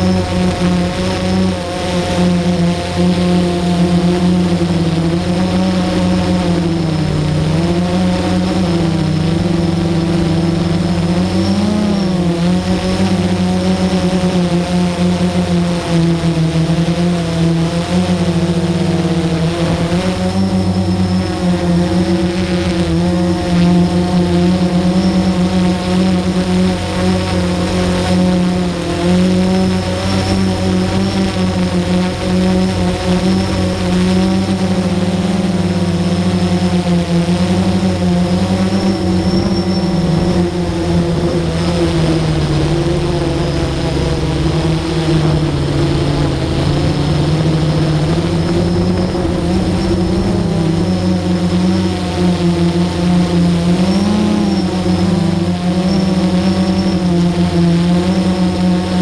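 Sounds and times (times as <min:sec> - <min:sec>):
model aircraft motor humming: 0:00.0 - 0:59.0.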